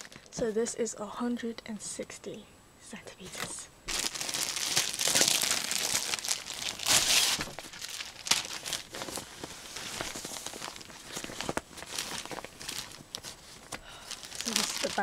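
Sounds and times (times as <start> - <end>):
plastic wrapping crinkling: 0.0 - 0.4, 3.4 - 15.0
nylon bag rustling: 3.9 - 15.0.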